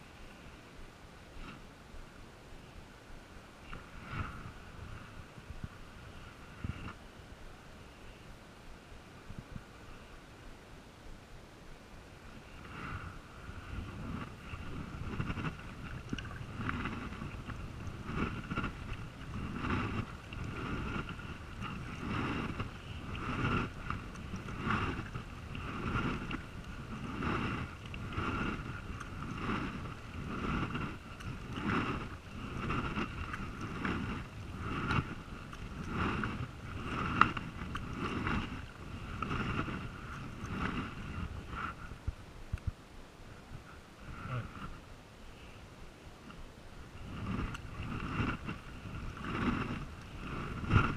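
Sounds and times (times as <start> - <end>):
kayak paddle strokes in water: 0.0 - 7.1, 11.7 - 42.9, 46.1 - 50.9
wind on microphone: 1.4 - 10.2, 12.1 - 45.0, 45.9 - 50.9.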